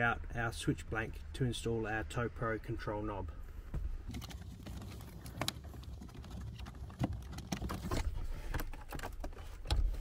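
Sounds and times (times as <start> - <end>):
clicks and rustling of wiring: 4.0 - 10.0.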